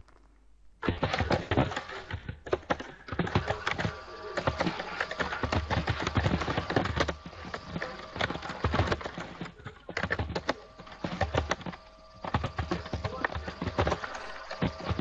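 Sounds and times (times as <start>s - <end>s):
computer keyboard typing: 3.1s - 15.0s.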